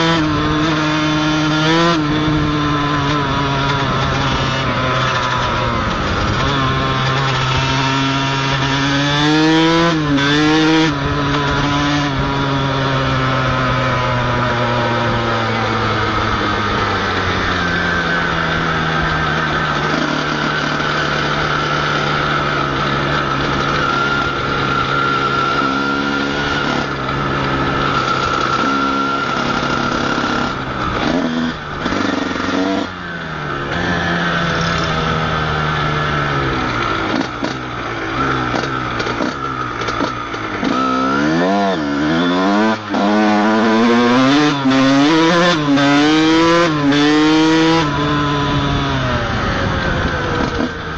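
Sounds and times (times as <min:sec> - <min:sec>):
two-stroke motorcycle engine revving: 0:00.0 - 0:50.9.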